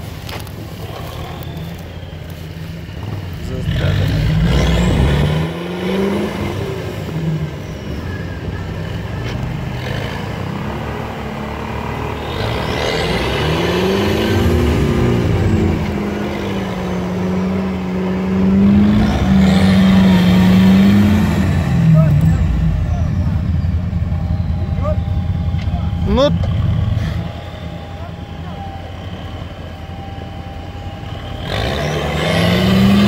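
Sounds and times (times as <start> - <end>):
off-road engines revving: 0.0 - 33.0.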